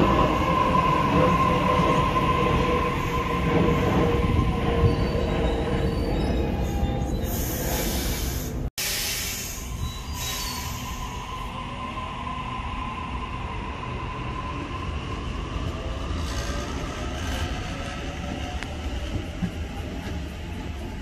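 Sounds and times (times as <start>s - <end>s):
train high whine: 0.0s - 21.0s
train wheels rumbling: 13.8s - 21.0s.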